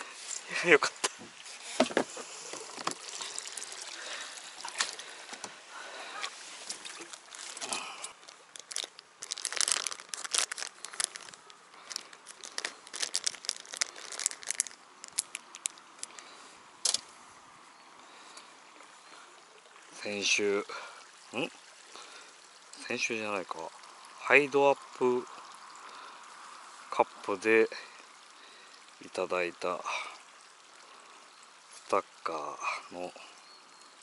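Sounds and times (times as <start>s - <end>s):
material rustling and crinkling: 6.2s - 16.2s.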